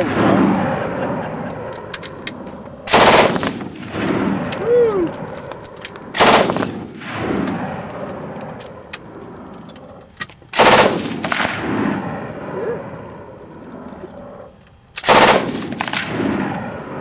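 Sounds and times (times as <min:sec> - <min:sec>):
machine gun bursts: 0:02.9 - 0:03.6, 0:06.2 - 0:06.8, 0:10.5 - 0:11.2, 0:15.0 - 0:16.0.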